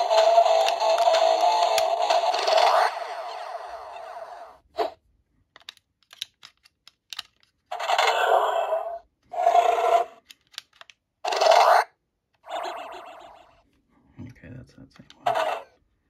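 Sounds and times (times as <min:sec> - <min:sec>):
toy electronic sound effects: 0:00.0 - 0:04.6, 0:07.7 - 0:10.2, 0:11.2 - 0:13.6
plastic clicks of toy: 0:00.2 - 0:02.7, 0:05.6 - 0:07.6, 0:10.2 - 0:11.4.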